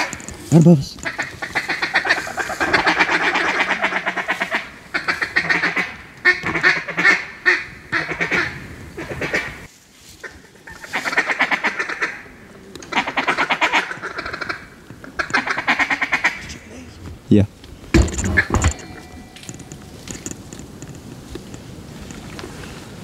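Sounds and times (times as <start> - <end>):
duck quacking rapidly: 1.0 - 9.6, 10.2 - 12.2.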